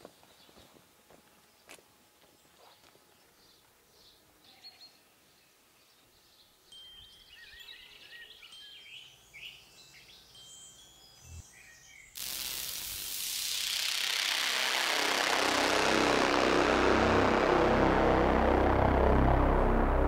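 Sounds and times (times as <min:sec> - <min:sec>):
small birds chirping: 0:01.5 - 0:14.4
loud steady rushing noise: 0:12.2 - 0:20.0.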